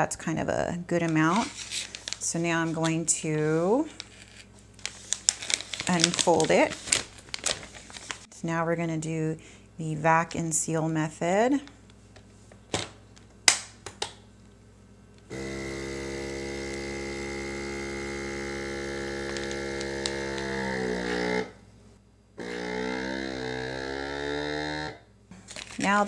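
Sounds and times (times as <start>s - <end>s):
vacuum sealer pump humming: 15.3s - 21.6s, 22.4s - 25.0s.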